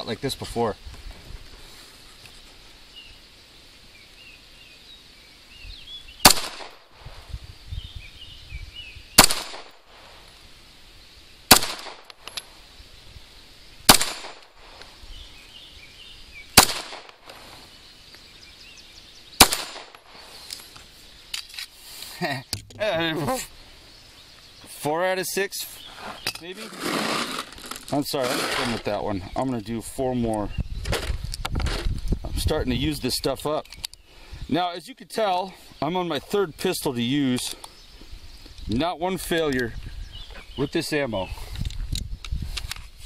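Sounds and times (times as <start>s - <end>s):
pistol shots with echo: 6.2s - 6.9s, 9.2s - 9.8s, 11.5s - 12.1s, 13.9s - 14.5s, 16.6s - 17.2s, 19.4s - 20.1s.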